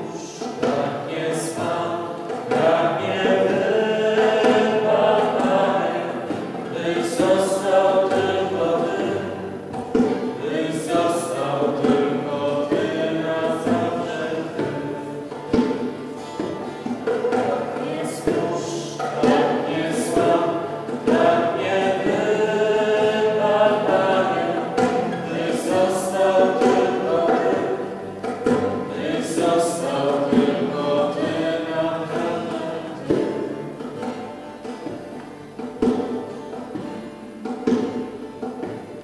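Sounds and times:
choir singing: 0.0 - 34.8.

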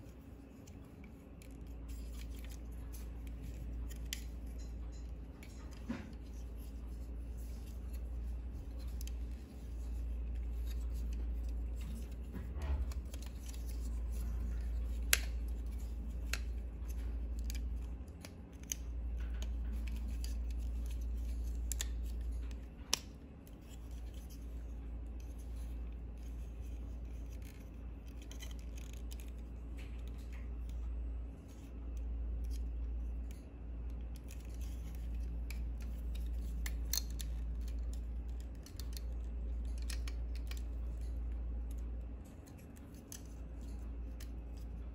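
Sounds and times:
steady low hum: 0.0 - 44.9
plastic clicks and snaps: 31.9 - 44.7.

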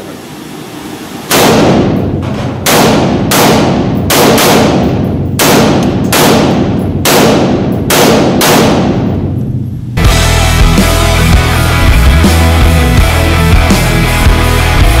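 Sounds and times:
rifle shots echoing indoors: 1.3 - 9.7.

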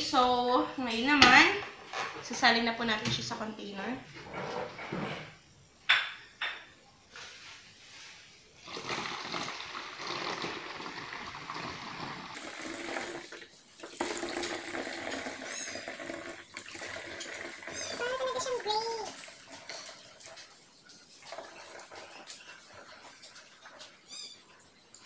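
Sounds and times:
liquid pouring into a bottle: 8.6 - 24.3.

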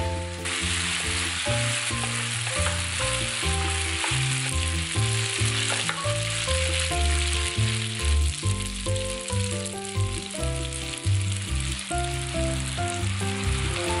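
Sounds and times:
background music with low notes: 0.0 - 14.0
pasta sizzling in oil: 0.0 - 14.0.

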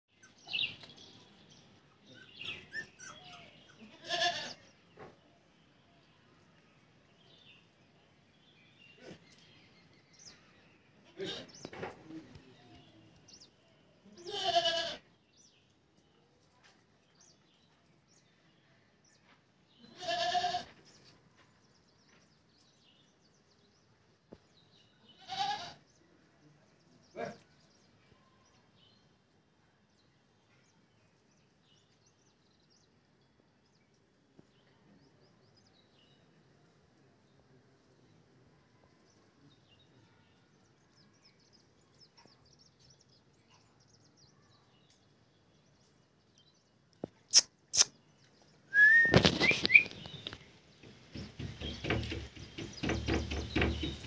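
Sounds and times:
faint puppy squeaks: 2.1 - 3.8
puppies whining and yelping: 2.6 - 3.4.

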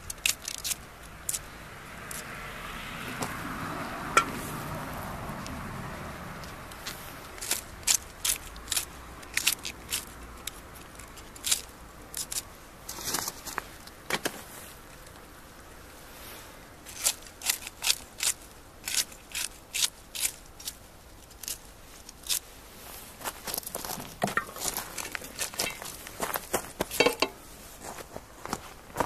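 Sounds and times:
scissors snipping peppers: 0.0 - 2.3, 6.4 - 12.5, 16.9 - 22.4.

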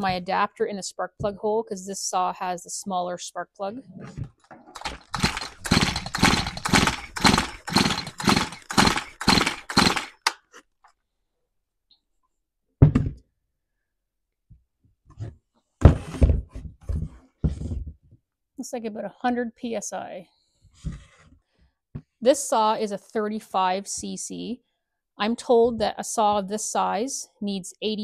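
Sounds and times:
chainsaw recoil starter pulls: 4.8 - 10.4.

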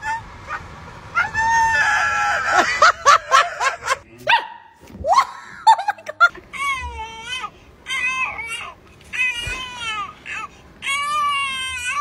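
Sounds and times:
dog yelping: 0.0 - 2.0
dogs barking and yipping: 0.0 - 6.2.

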